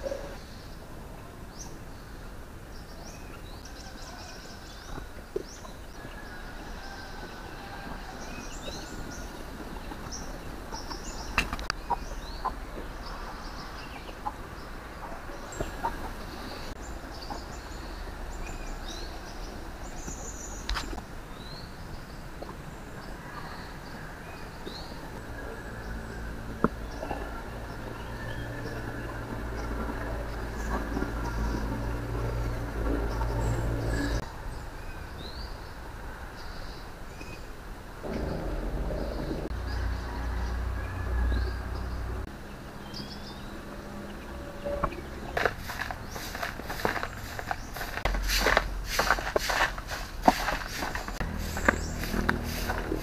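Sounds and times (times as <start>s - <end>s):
small birds chirping: 0.0s - 53.0s
chickens clucking: 4.9s - 18.0s, 44.6s - 53.0s.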